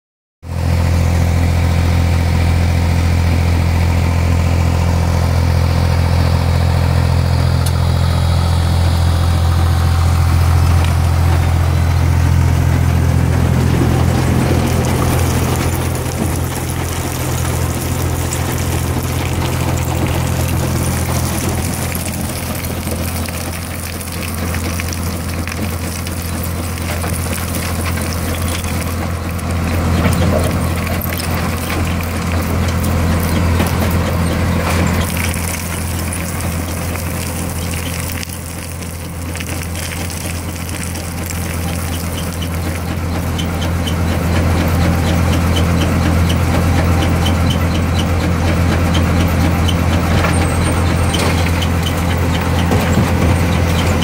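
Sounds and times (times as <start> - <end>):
deep diesel engine hum: 0.4 - 54.0
concrete rattling being crushed: 13.7 - 43.4.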